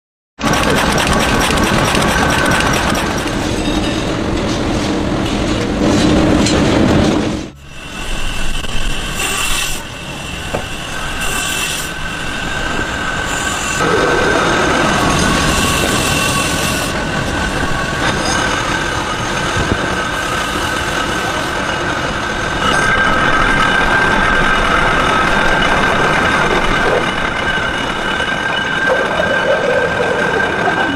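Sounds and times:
wood-cutting machinery clattering: 0.4 - 3.6.

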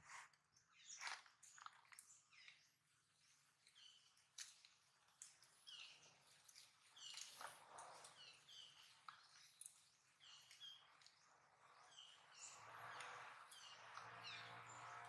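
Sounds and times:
faint bird chirping: 5.2 - 15.0.

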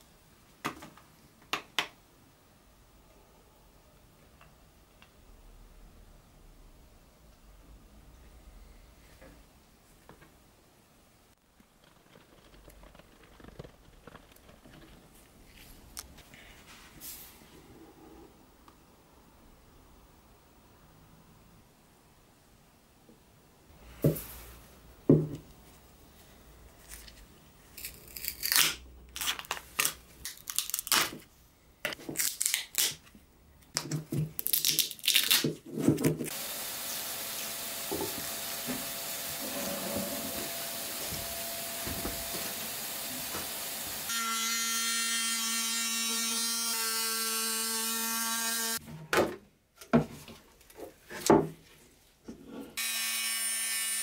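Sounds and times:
rotary tool buzzing whine: 36.3 - 48.8, 52.8 - 54.0.

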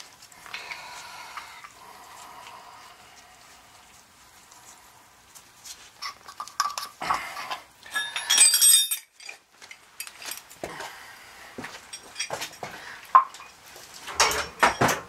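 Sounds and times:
ringing metal clatter: 7.9 - 9.4
metal canister clinking and rattling: 14.1 - 15.0.

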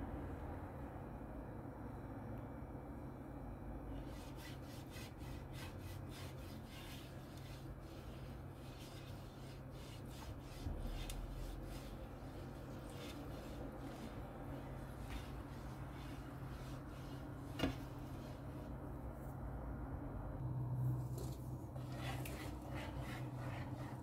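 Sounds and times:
pastry brush rubbing frying pan: 4.0 - 18.8, 21.2 - 24.0.

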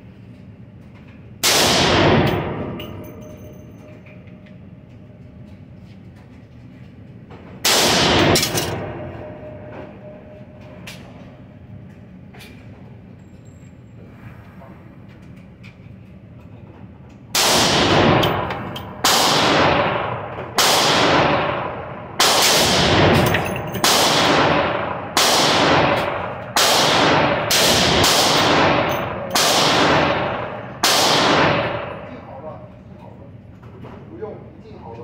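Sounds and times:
handgun shots echoing indoors: 1.4 - 4.4, 7.6 - 11.1, 17.3 - 32.4.

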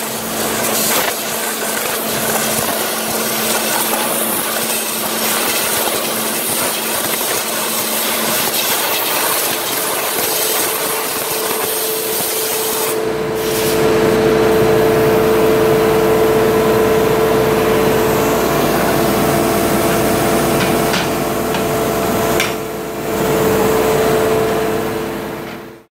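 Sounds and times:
machine hum with held tones: 9.8 - 25.8.

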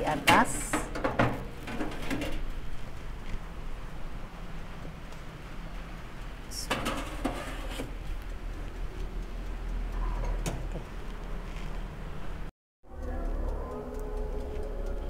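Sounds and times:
metal baking pan clattering: 0.0 - 2.5, 6.6 - 7.9
steady low hum: 0.0 - 15.0.

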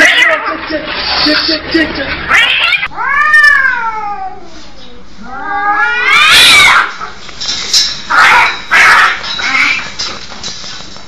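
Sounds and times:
cat meowing: 2.3 - 4.5, 5.3 - 6.9.

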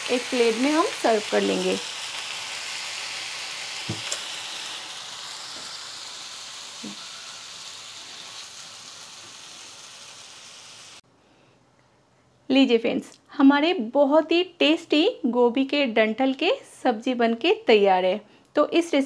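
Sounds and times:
vegetables sizzling in a pan: 0.0 - 11.0.

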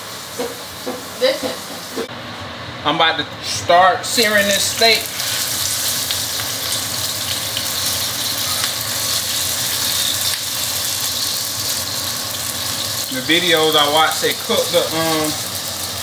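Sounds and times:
steak sizzling in a frying pan: 4.2 - 16.0.

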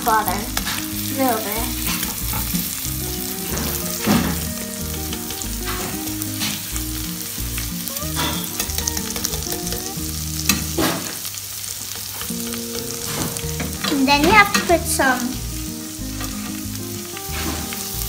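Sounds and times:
garlic sizzling in butter: 0.0 - 18.0
spatula scraping a pan: 17.2 - 18.0.

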